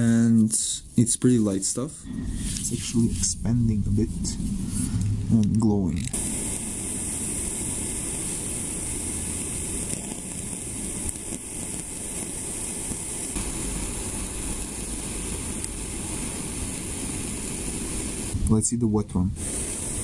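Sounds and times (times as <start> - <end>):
gas torch flame hissing: 0.0 - 20.0.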